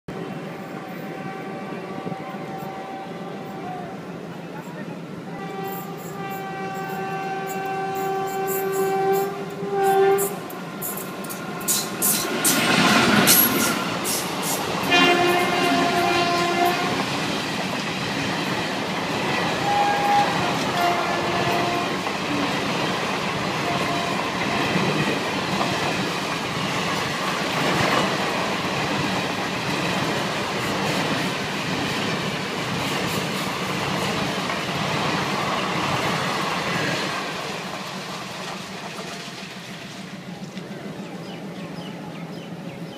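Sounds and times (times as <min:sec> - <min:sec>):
train rushing past: 0:00.1 - 0:42.9
train horn: 0:00.5 - 0:04.0, 0:05.3 - 0:10.6, 0:14.8 - 0:17.3, 0:19.3 - 0:22.7, 0:23.4 - 0:25.1
train wheels clattering on rails: 0:05.6 - 0:41.4.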